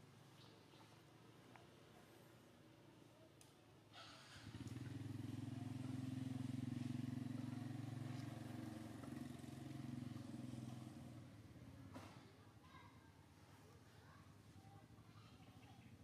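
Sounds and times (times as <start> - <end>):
vehicle engine drone: 4.2 - 11.8.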